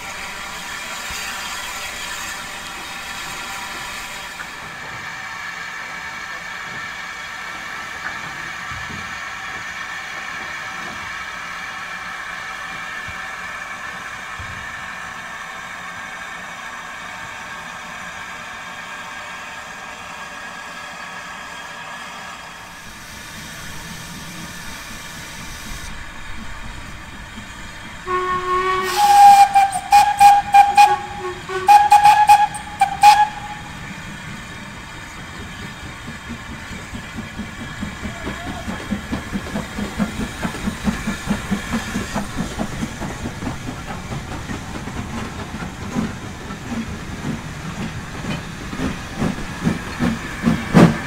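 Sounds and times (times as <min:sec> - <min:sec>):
steam locomotive hissing: 0:00.0 - 0:51.0
steam whistle blasts: 0:28.0 - 0:33.8.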